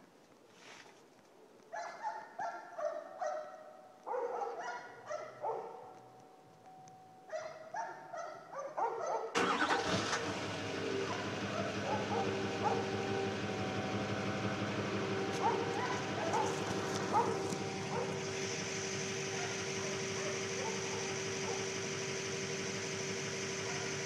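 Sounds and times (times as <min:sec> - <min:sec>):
diesel engine starting and rumbling: 0:09.4 - 0:24.0
turbo actuator whining bursts: 0:09.4 - 0:24.0.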